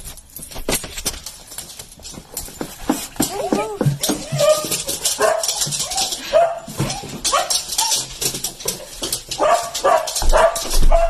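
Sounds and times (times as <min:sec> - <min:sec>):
dog yelping barks and whines: 0:03.2 - 0:08.1.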